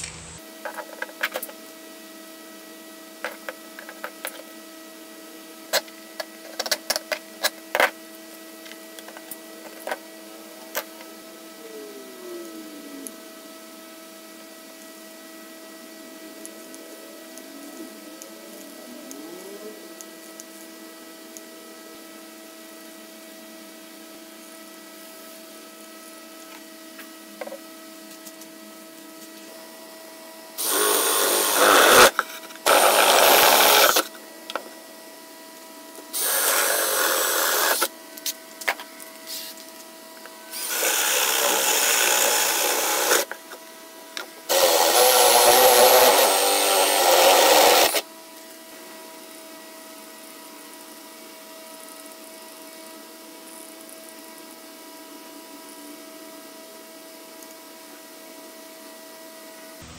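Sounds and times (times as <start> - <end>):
faint steady hum: 0.0 - 59.9
power drill boring wood: 30.6 - 34.2, 36.1 - 37.9, 40.5 - 43.4, 44.4 - 48.1.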